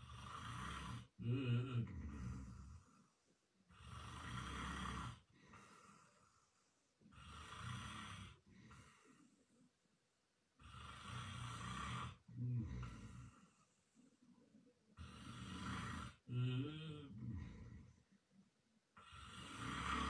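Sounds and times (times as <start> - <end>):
man snoring: 0.0 - 3.0, 3.7 - 6.1, 7.1 - 8.4, 10.6 - 13.4, 15.0 - 17.9, 19.0 - 20.0
soft breath: 1.8 - 10.0, 10.6 - 16.3, 17.0 - 18.4.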